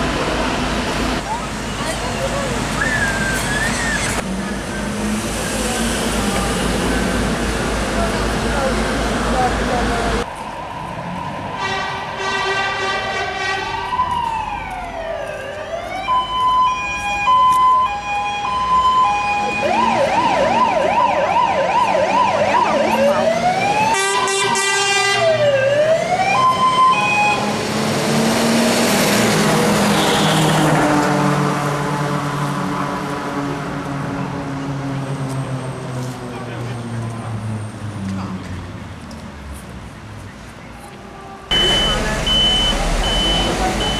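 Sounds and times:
engine and road noise: 0:00.0 - 0:43.9
fire engine siren: 0:10.2 - 0:27.7, 0:41.5 - 0:43.9.

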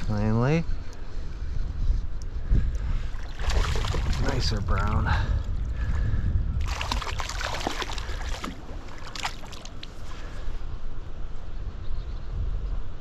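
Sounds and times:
wind buffeting microphone: 0:00.0 - 0:13.0
water splashing and sloshing: 0:02.6 - 0:10.6.

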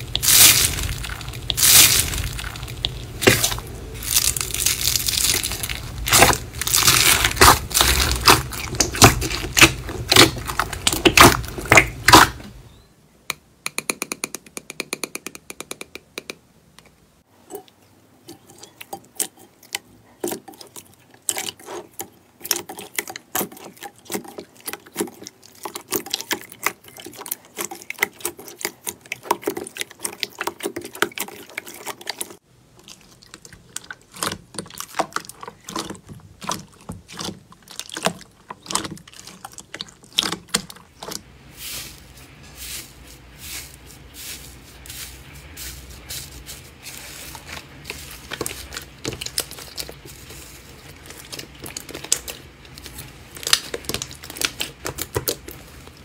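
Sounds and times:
crunchy foam bead slime crackling: 0:00.0 - 0:12.6, 0:33.8 - 0:56.0.

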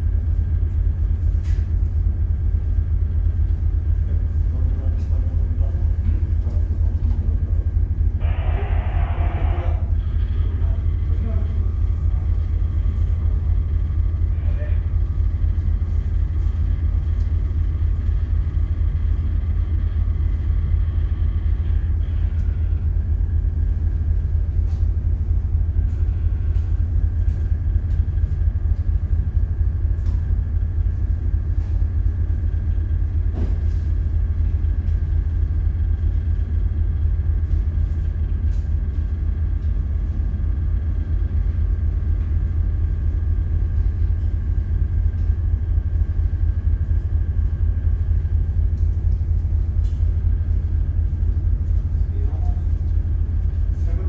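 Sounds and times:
faint steady hum: 0:00.0 - 0:54.0
ship engines rumbling: 0:00.0 - 0:54.0.

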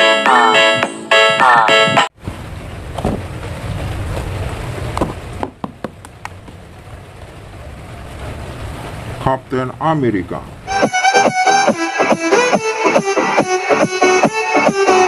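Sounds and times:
upbeat electronic music: 0:00.0 - 0:02.1, 0:10.7 - 0:15.0
low rumble and hiss: 0:02.2 - 0:10.7.

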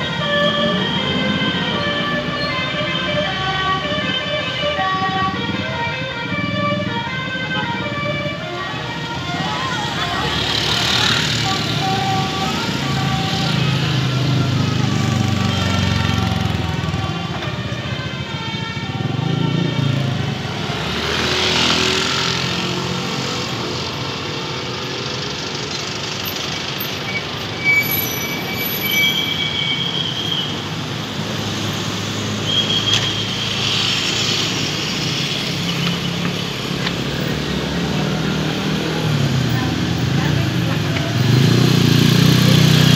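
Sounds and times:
vehicle engines and road noise: 0:00.0 - 0:42.9.

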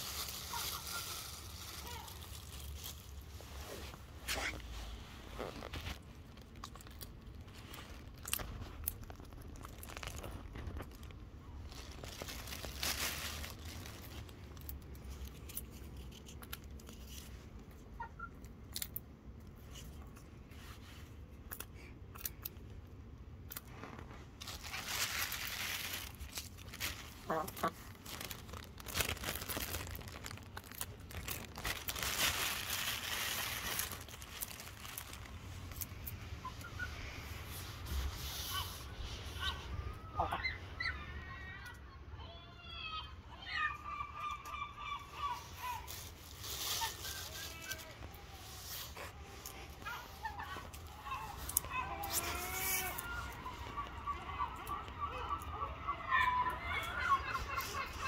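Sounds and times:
chickens pecking clicks and crunches: 0:00.0 - 0:03.3, 0:05.5 - 0:36.9, 0:48.9 - 0:58.0
crinkling rustle: 0:00.0 - 0:41.0, 0:44.2 - 0:58.0.

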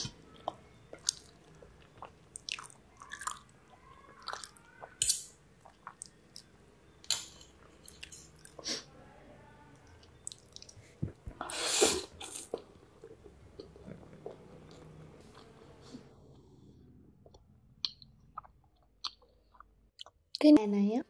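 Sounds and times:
person chewing spaghetti: 0:00.1 - 0:06.5, 0:09.8 - 0:15.5, 0:17.2 - 0:20.4.

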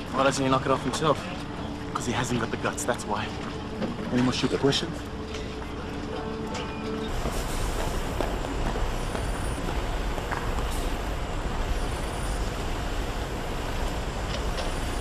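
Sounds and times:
engine-room machinery rumble: 0:00.0 - 0:15.0.

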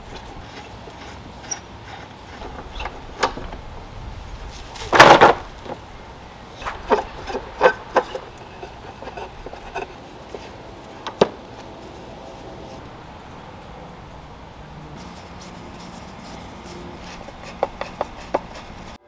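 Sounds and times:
wooden table legs clattering: 0:02.3 - 0:03.8, 0:04.8 - 0:11.4.

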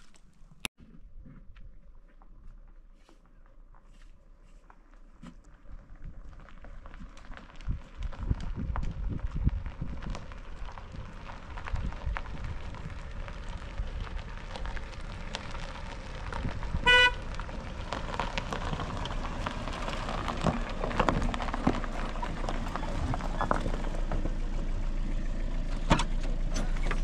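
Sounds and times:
low car engine: 0:00.1 - 0:27.0
tyres crunching on gravel: 0:01.5 - 0:27.0
car horn tooting: 0:16.8 - 0:17.3.

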